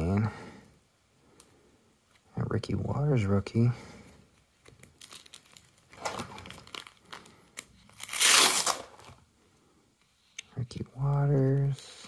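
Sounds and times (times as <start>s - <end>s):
plastic sleeves crinkling: 4.3s - 9.3s.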